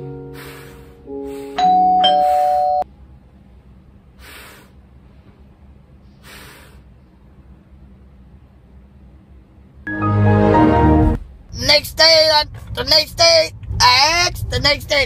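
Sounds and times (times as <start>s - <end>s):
doorbell ding-dong chime: 1.6s - 2.8s.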